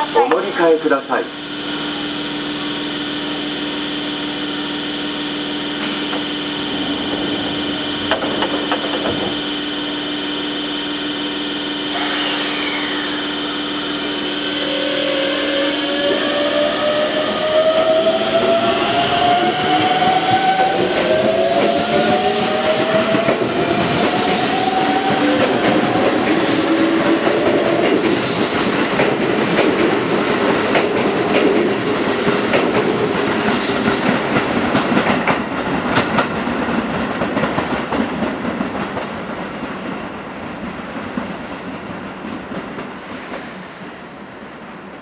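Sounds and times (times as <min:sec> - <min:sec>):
electric train motor whine: 0:01.5 - 0:28.0
train wheels clacking over rail joints: 0:08.0 - 0:09.3, 0:22.9 - 0:39.1.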